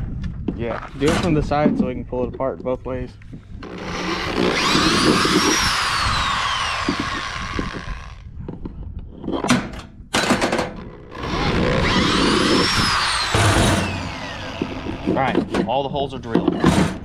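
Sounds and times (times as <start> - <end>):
knocks clearing drill bit: 3.6 - 8.3, 11.0 - 15.6
electric drill boring through plastic: 3.6 - 8.4, 10.8 - 15.5.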